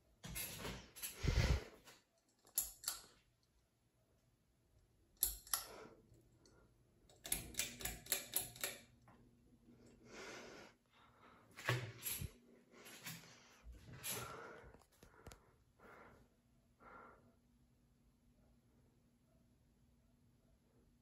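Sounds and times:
pull-chain switch clicking: 0:07.1 - 0:08.8.

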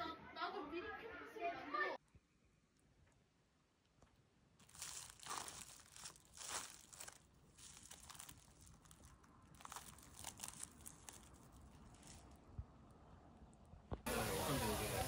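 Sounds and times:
plastic cling wrap crinkling: 0:04.6 - 0:12.5.

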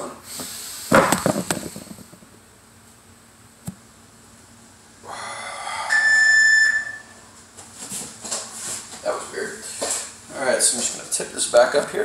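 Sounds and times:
high steady buzzing tone: 0:05.1 - 0:07.4.

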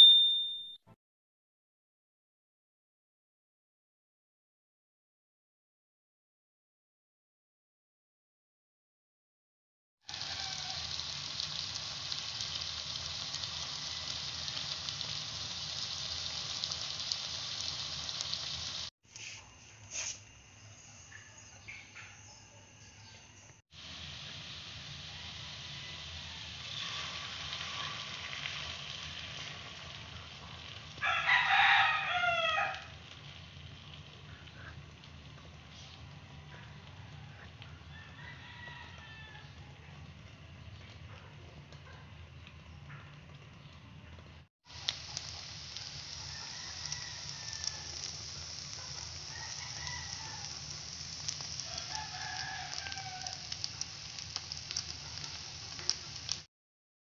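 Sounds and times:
food sizzling in a frying pan: 0:10.0 - 0:18.9, 0:23.0 - 0:39.6, 0:44.6 - 0:56.5
rooster crowing: 0:10.1 - 0:11.0, 0:25.1 - 0:26.8, 0:31.0 - 0:33.0, 0:36.6 - 0:39.8, 0:46.2 - 0:48.1, 0:49.2 - 0:50.8, 0:51.6 - 0:53.6.

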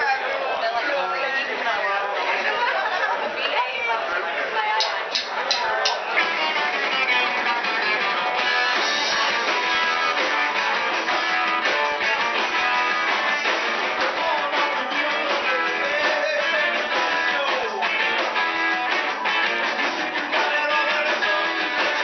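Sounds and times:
drum kit: 0:04.8 - 0:22.0
electric guitars: 0:04.9 - 0:22.0.

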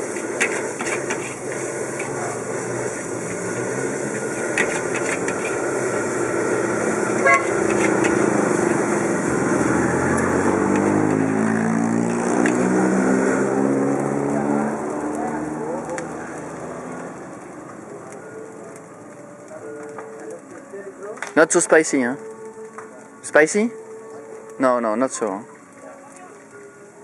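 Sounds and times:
metal spatula stirring in a wok: 0:00.0 - 0:09.0
motorbike engines running: 0:00.0 - 0:20.5
short horn beep: 0:07.2 - 0:07.6.

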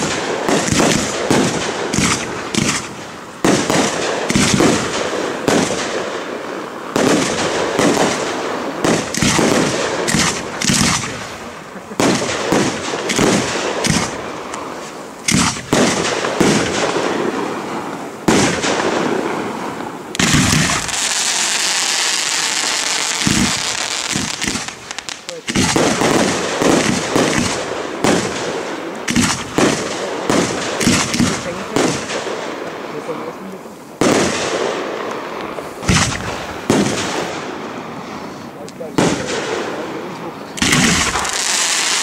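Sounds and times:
fireworks hissing: 0:00.0 - 0:32.2, 0:35.1 - 0:39.6, 0:40.2 - 0:42.0
fireworks bursting and crackling: 0:00.0 - 0:42.0.

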